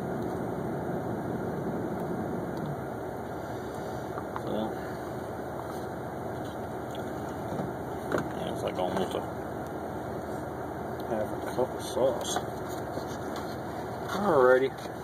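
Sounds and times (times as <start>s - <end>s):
car engine idling: 0.0s - 15.0s
faint clicks and scrapes: 12.6s - 15.0s.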